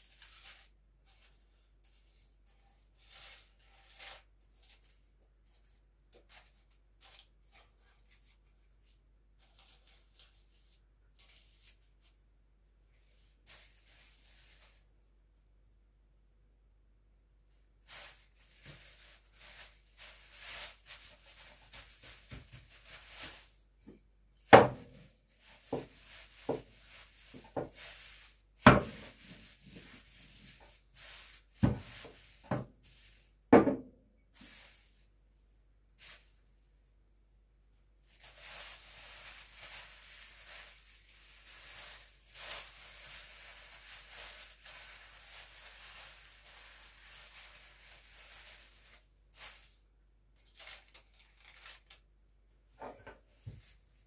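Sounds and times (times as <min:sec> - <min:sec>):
plastic bag crinkling: 0:17.8 - 0:23.6, 0:24.6 - 0:33.3, 0:38.0 - 0:49.8, 0:50.4 - 0:52.1
knocks on worktop: 0:33.5 - 0:33.8.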